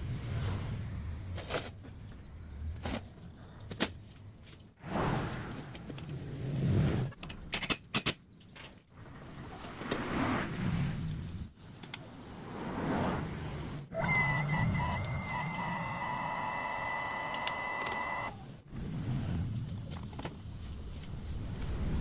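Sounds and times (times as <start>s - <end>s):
hydraulic system humming: 13.9s - 18.4s
sharp metallic clicks: 14.0s - 18.3s.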